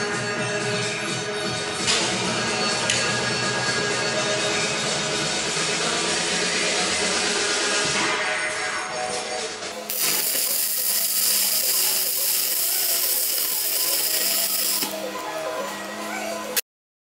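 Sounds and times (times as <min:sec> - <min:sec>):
background music: 0:00.0 - 0:16.6
welding arc crackling and hissing: 0:09.9 - 0:15.2.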